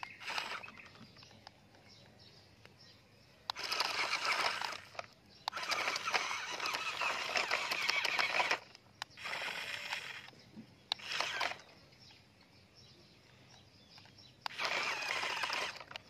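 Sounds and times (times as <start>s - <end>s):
toy trucks crunching on gravel: 0.0s - 2.0s, 3.5s - 11.8s, 13.8s - 16.0s.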